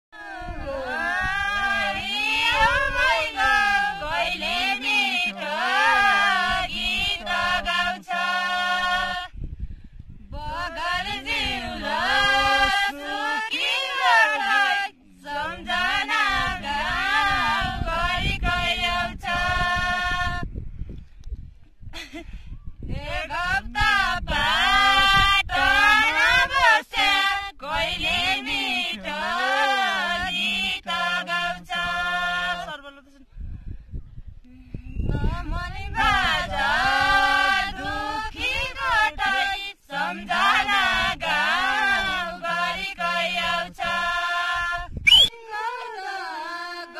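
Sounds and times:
people singing in unison: 0.2s - 9.6s, 10.3s - 20.5s, 22.9s - 33.0s, 35.0s - 46.9s.

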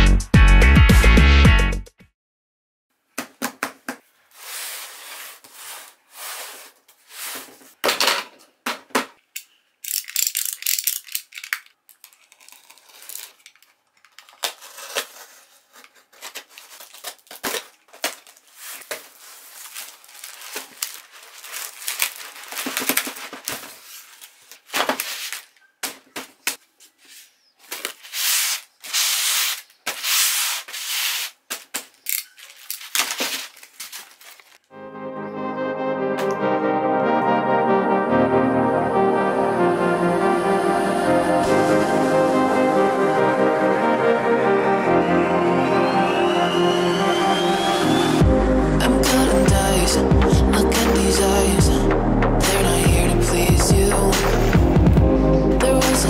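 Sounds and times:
knife cutting cardboard box: 4.4s - 7.6s, 14.4s - 17.6s, 27.8s - 31.4s.

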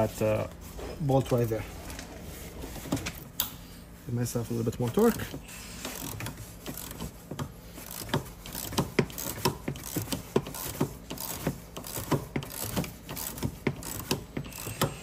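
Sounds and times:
hand ratchet clicking: 5.8s - 15.0s.

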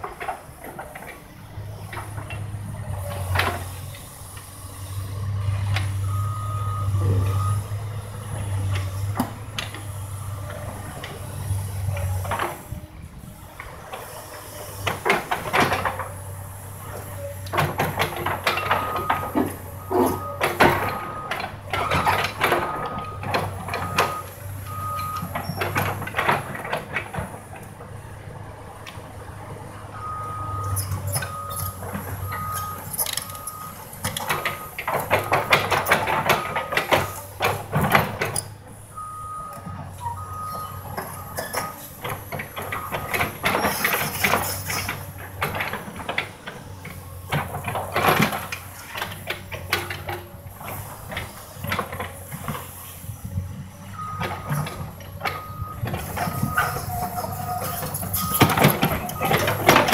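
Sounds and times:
excavator diesel engine running: 0.0s - 59.9s
backup alarm beeping: 6.0s - 7.7s.

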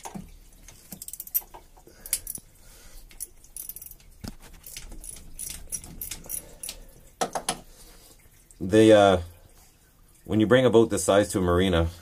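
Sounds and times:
light metallic clinks and taps: 0.8s - 2.5s, 3.1s - 7.6s.

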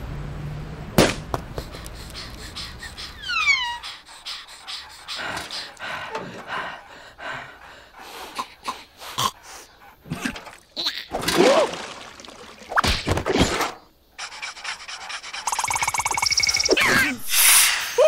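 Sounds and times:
cartoon characters panting: 1.5s - 10.2s, 14.2s - 17.2s
small grunts: 8.2s - 11.7s.

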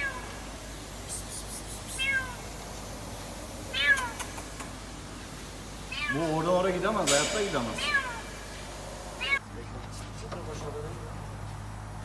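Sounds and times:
cat meowing: 0.0s - 0.4s, 1.9s - 2.4s, 3.7s - 4.4s, 5.9s - 6.3s, 7.7s - 8.3s, 9.2s - 9.4s.

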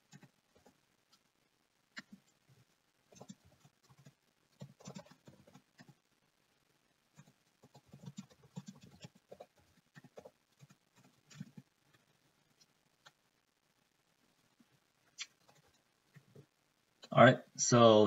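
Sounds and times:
typing on keyboard: 3.1s - 6.0s, 7.2s - 11.7s.

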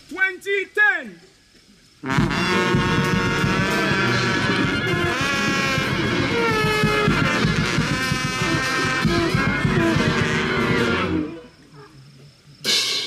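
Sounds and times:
loud dense music with bending notes: 2.1s - 11.3s.

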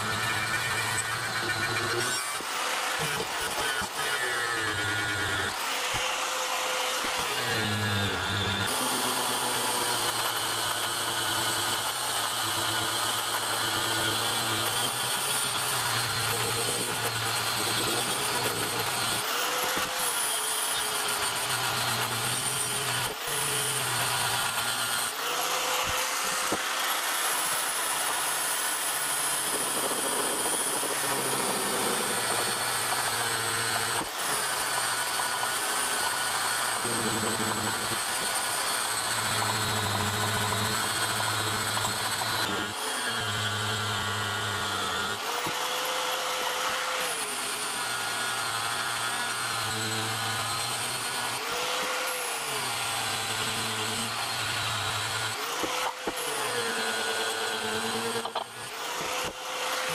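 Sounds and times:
angle grinder grinding metal: 0.0s - 59.9s.

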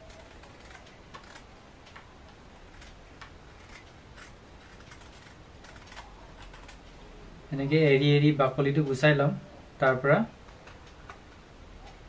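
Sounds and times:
knife scraping vegetable skin: 0.0s - 1.5s, 2.6s - 6.8s.

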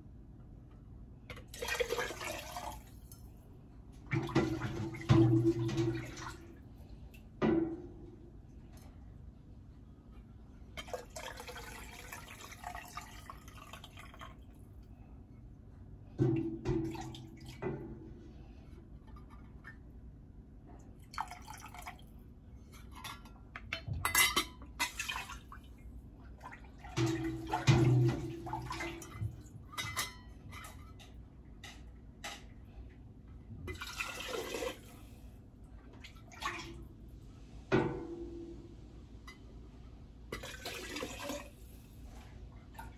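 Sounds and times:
liquid pouring into jars: 1.4s - 3.2s, 10.8s - 14.5s, 21.0s - 22.1s, 33.7s - 35.1s, 40.3s - 41.7s.

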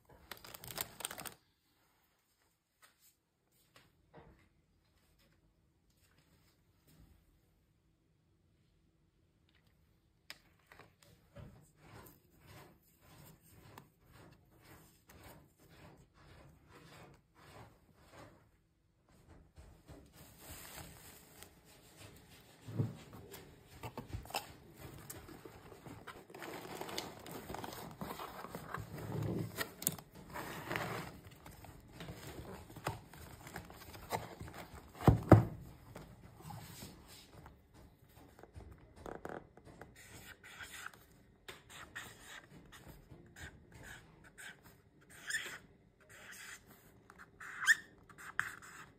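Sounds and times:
cardboard box and paper rustling: 0.1s - 1.5s, 20.2s - 37.6s.

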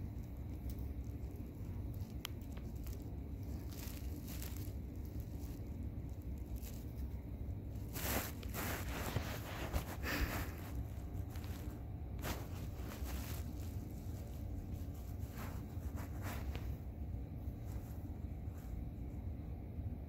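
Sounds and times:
rustling and crinkling: 0.0s - 20.0s.

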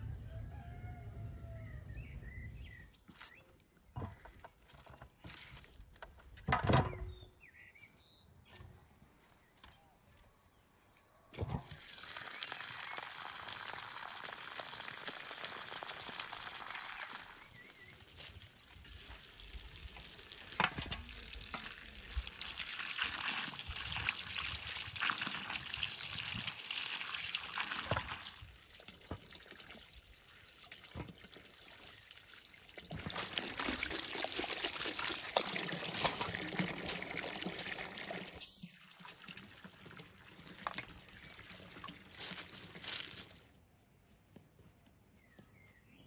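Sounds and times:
hose water splashing into bowl: 11.4s - 43.3s.

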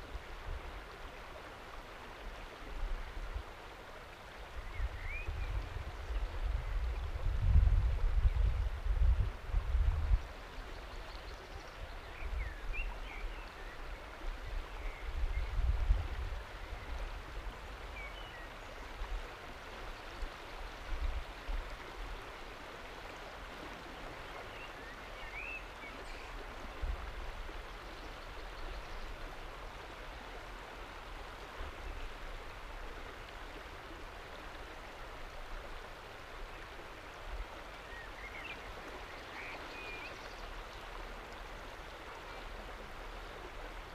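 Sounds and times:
wind buffeting microphone: 4.6s - 10.4s, 15.0s - 17.7s
river water rushing over rocks: 16.1s - 43.9s.

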